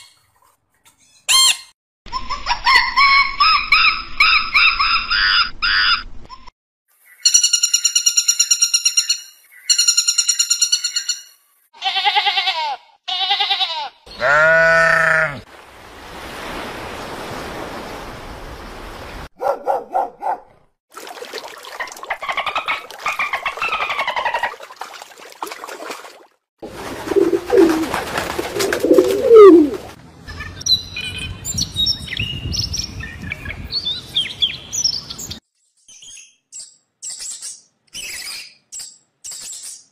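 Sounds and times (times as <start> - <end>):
bleat-like animal calls: 11.8 - 15.4
high pulsed animal cries: 13.1 - 15.4
warbling gliding call: 27.0 - 27.9, 28.5 - 30.0.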